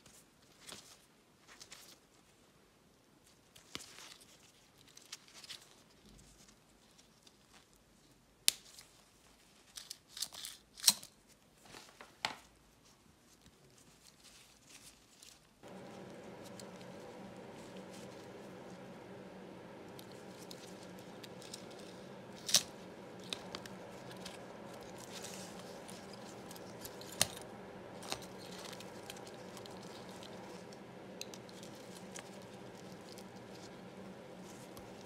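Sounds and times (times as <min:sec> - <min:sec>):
steady low hum: 0:15.6 - 0:35.0.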